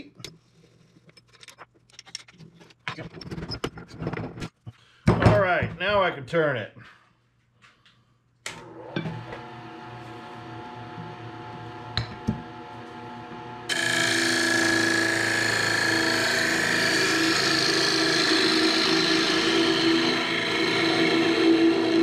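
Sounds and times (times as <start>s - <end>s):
wood lathe motor hum: 8.6s - 22.0s
gouge cutting spinning wood: 13.7s - 22.0s.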